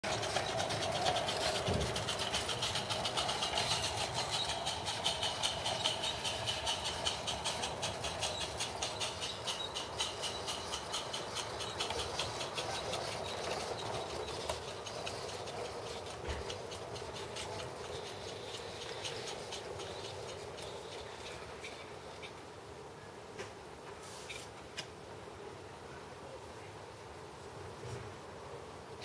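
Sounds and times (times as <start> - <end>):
model steam locomotive chuffing: 0.0 - 22.4.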